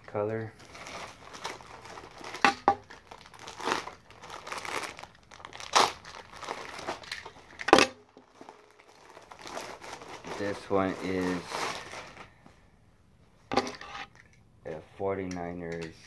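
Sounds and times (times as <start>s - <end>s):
plastic packaging crinkling: 0.0s - 12.4s.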